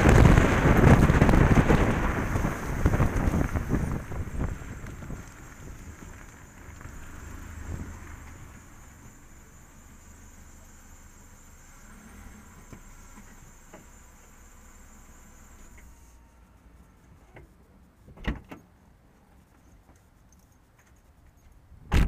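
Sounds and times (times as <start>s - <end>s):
road and wind rumble: 0.0s - 16.0s, 20.6s - 22.0s
car engine idling: 0.0s - 16.4s
faint high whine: 0.0s - 18.1s.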